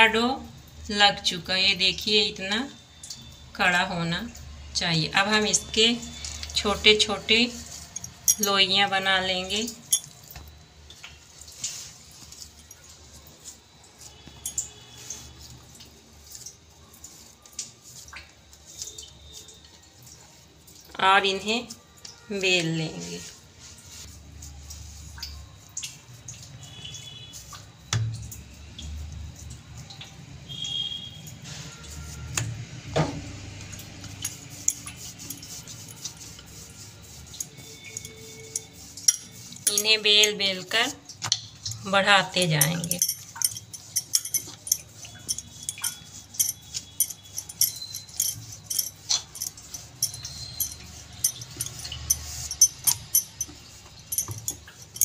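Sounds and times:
dough squishing: 0:05.2 - 0:29.8, 0:30.5 - 0:55.0
light clinks: 0:07.9 - 0:08.7, 0:42.6 - 0:55.0
rolling pin rolling dough: 0:22.6 - 0:25.5, 0:33.2 - 0:41.0, 0:41.6 - 0:55.0.

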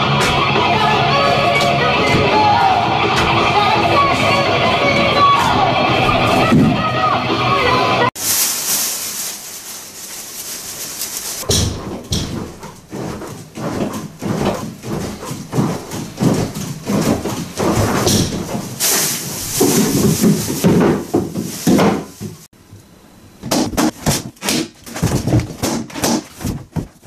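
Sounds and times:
steady hiss: 0:08.2 - 0:11.5
boxes clattering over: 0:11.1 - 0:22.5, 0:23.9 - 0:27.0
costume bumping boxes: 0:23.4 - 0:27.0.

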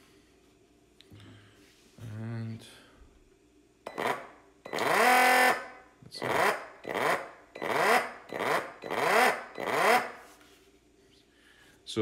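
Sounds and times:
pump motor whirring in bursts: 0:03.9 - 0:10.2.

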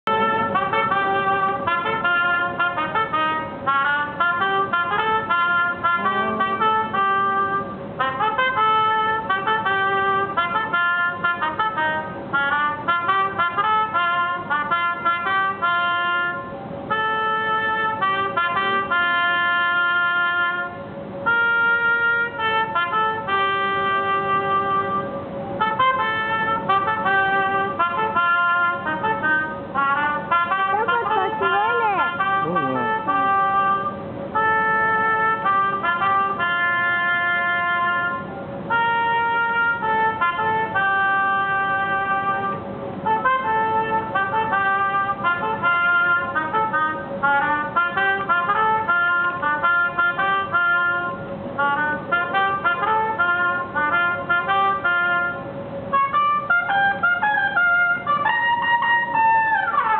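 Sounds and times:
trumpet melody: 0:00.0 - 0:59.9
steady held tone: 0:05.8 - 0:08.0, 0:28.9 - 0:36.2.

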